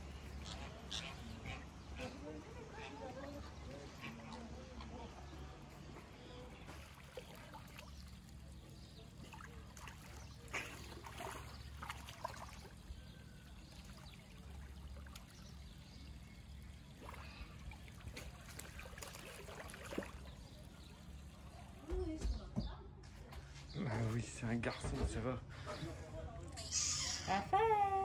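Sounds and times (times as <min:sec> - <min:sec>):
otter splashing in pond water: 0:00.0 - 0:22.4.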